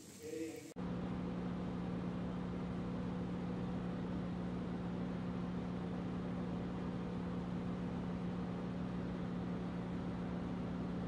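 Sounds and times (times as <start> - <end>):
steady machine hum: 0.0 - 11.0.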